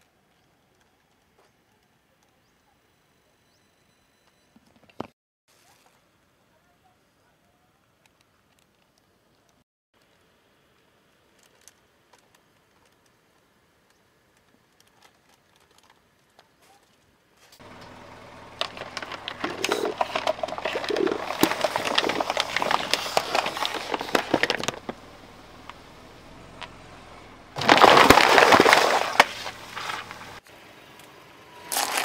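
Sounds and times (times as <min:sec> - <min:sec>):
tyre crushing plastic bottles: 0:18.5 - 0:25.0, 0:27.6 - 0:30.4.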